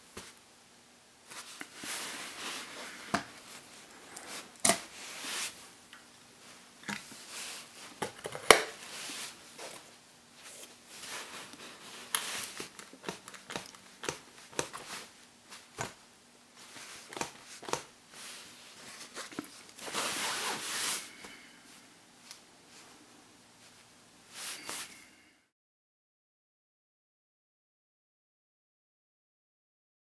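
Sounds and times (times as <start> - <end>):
scraping rustle: 18.2 - 21.2.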